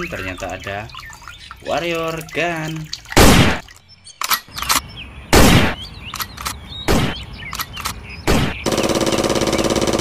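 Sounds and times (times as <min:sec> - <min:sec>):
single gunshots: 0:03.2 - 0:03.6, 0:05.3 - 0:05.8, 0:06.9 - 0:07.2, 0:08.3 - 0:08.7
automatic gunfire burst: 0:08.3 - 0:10.0.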